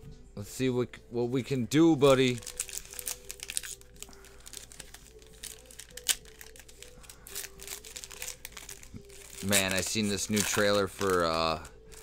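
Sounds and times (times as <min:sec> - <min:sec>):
foil wrapper crinkling: 0:02.0 - 0:12.0.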